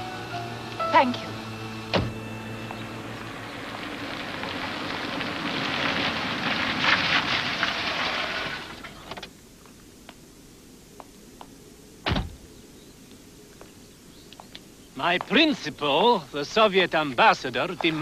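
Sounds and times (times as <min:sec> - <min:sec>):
car pulling away: 0:00.0 - 0:09.2.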